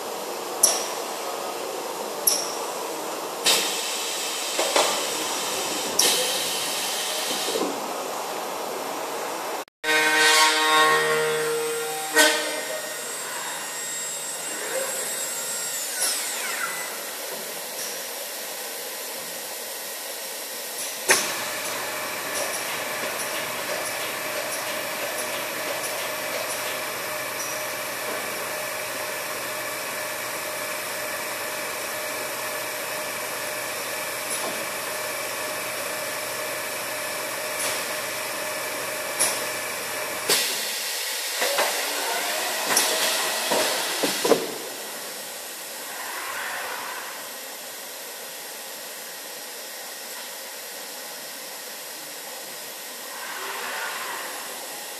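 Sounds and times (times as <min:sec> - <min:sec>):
machine hiss: 0:03.4 - 0:07.7, 0:11.6 - 0:49.8.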